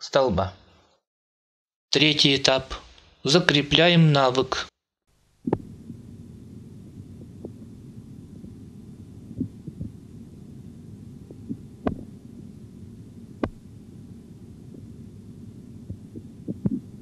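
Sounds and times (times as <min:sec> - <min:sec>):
low stethoscope rumble: 0:05.4 - 0:17.0.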